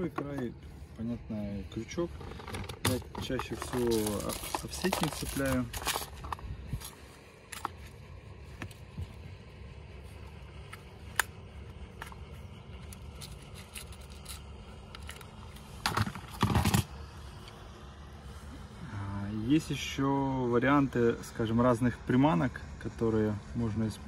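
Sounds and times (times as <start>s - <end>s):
low steady rumble: 0.0s - 24.0s
fishing tackle clicks and scrapes: 2.0s - 8.0s, 11.9s - 16.9s.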